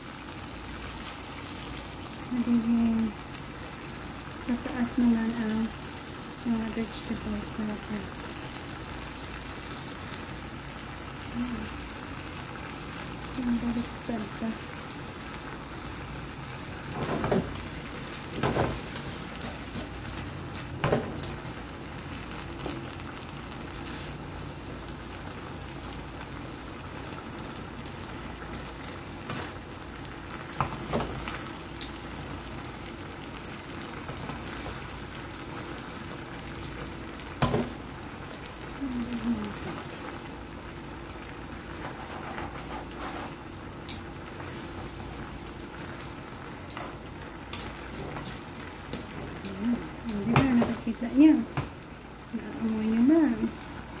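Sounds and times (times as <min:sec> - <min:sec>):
sauce sizzling and bubbling: 0:00.0 - 0:54.0.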